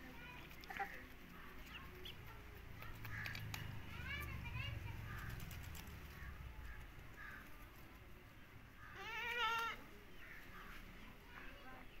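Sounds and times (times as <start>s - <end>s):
faint distant voices: 0.0s - 12.0s.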